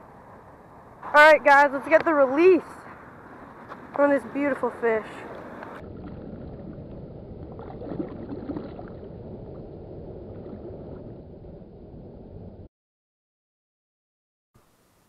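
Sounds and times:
muffled shallow water noise: 0:02.8 - 0:12.7
light water splashes: 0:04.8 - 0:11.2.

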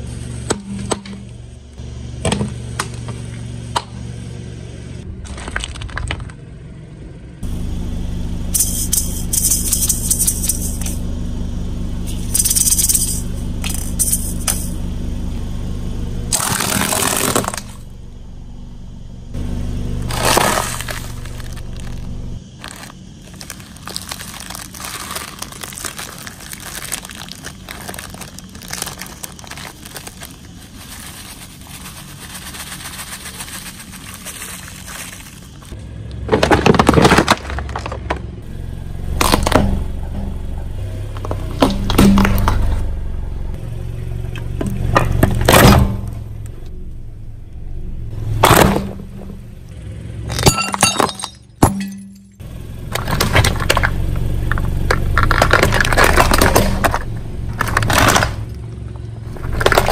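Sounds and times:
plastic balls cracking and popping: 0:05.2 - 0:06.4, 0:16.3 - 0:17.8, 0:20.1 - 0:31.6, 0:52.9 - 0:58.6, 0:59.3 - 0:59.9
tyre crushing wafer rolls: 0:05.2 - 0:06.5, 0:16.3 - 0:17.8, 0:20.0 - 0:42.8, 0:48.3 - 0:49.4, 0:52.8 - 0:59.9
crumbs rattling onto concrete: 0:22.6 - 0:38.3, 0:59.3 - 0:59.9.

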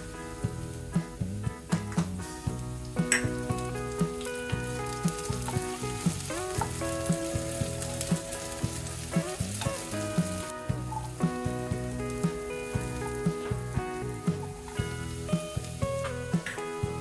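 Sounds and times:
background music with steady beat: 0:00.0 - 0:17.0
chillies sizzling in a frying pan: 0:00.0 - 0:17.0
wooden spatula stirring: 0:03.2 - 0:16.4.

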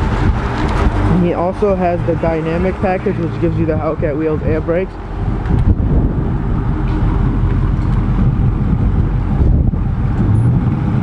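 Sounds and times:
car engine idling rumble: 0:00.0 - 0:11.0.

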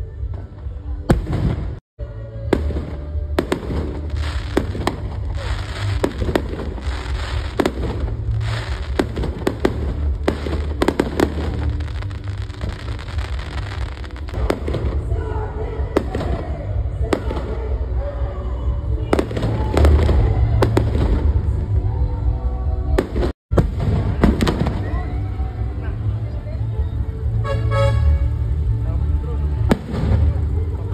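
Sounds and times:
steady low rumble: 0:00.1 - 0:30.9
fireworks banging: 0:01.1 - 0:01.8, 0:02.4 - 0:18.0, 0:19.1 - 0:21.8, 0:22.9 - 0:25.5, 0:29.6 - 0:30.9.

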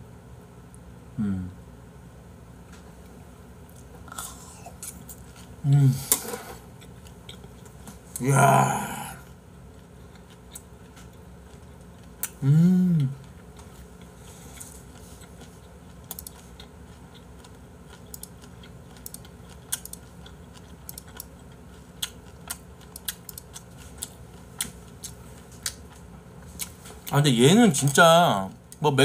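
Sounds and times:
man humming mmm: 0:01.1 - 0:01.7, 0:05.6 - 0:06.4, 0:08.2 - 0:09.3, 0:12.2 - 0:13.3.

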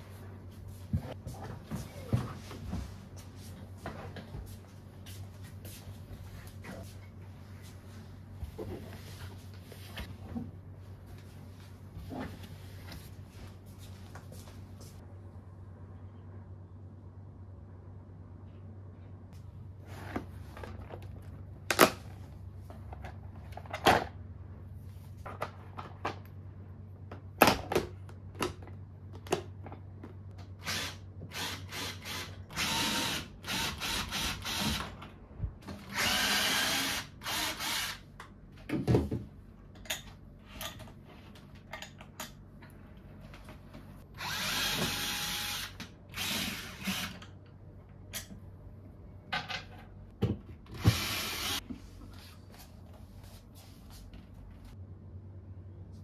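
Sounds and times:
power drill running: 0:30.6 - 0:34.8, 0:35.9 - 0:38.0, 0:44.2 - 0:47.2, 0:50.8 - 0:51.6.

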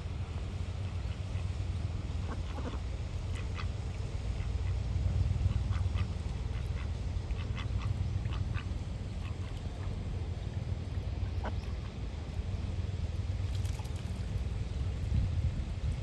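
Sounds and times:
wind rumble on microphone: 0:04.6 - 0:16.0
ducks quacking: 0:05.5 - 0:09.9.

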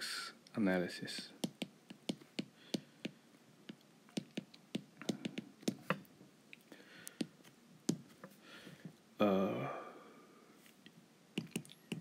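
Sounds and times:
stylus tapping on glass screen: 0:01.2 - 0:06.0, 0:11.4 - 0:12.0.

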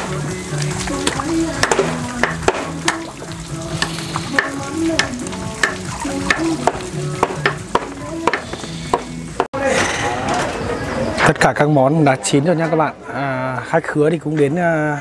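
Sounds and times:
food sizzling in a pan: 0:00.0 - 0:09.3
background music: 0:00.0 - 0:11.2.

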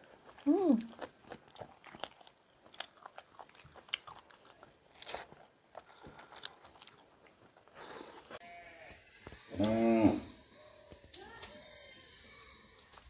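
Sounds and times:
chewing with mouth clicks: 0:00.0 - 0:08.4.

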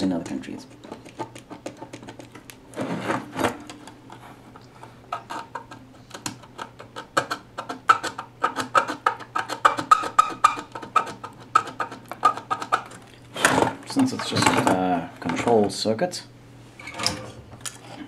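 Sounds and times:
steady low hum: 0:00.0 - 0:18.0
tool scratching circuit board: 0:07.0 - 0:12.8.

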